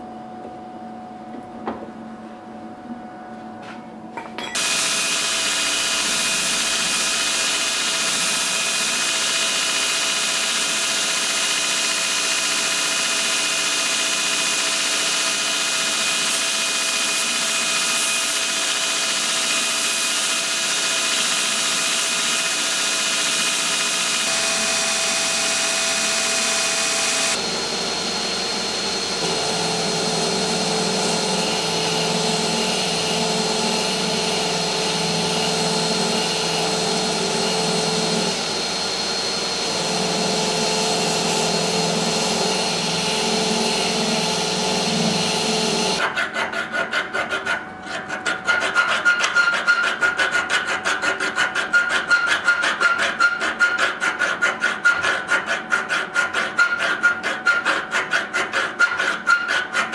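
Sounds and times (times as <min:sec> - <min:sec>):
steady motor whine: 0:04.4 - 0:46.0.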